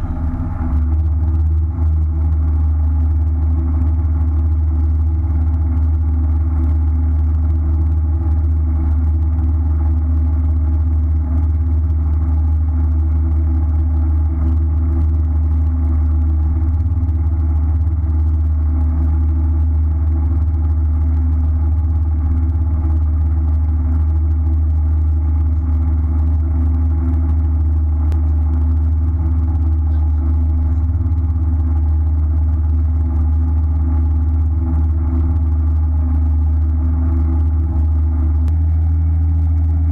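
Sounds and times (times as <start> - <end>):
boat engine idling: 0.0 - 4.6, 15.5 - 39.9.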